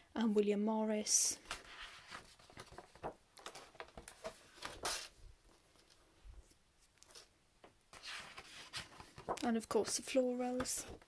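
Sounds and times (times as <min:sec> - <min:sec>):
paper rustling and crinkling: 0:01.4 - 0:07.3, 0:07.9 - 0:11.0.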